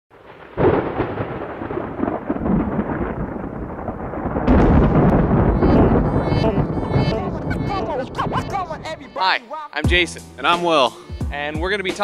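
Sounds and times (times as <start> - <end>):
sharp thunder crash: 0.2 - 9.2
thunder rumbling: 0.2 - 9.2.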